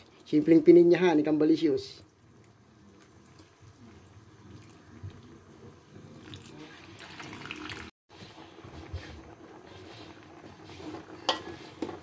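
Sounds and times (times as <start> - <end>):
milk trickling into a wok: 1.8 - 7.9.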